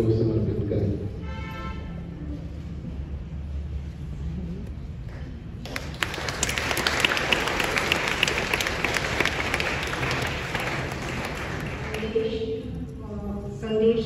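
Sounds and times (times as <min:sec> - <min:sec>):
crowd applauding: 0:05.6 - 0:12.4.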